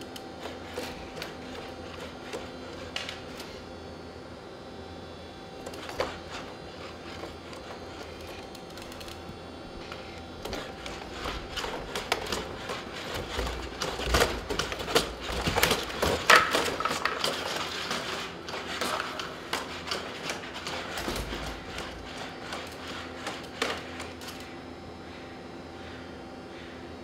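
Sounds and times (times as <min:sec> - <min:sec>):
robot feet tapping on hard floor: 0:05.7 - 0:24.2.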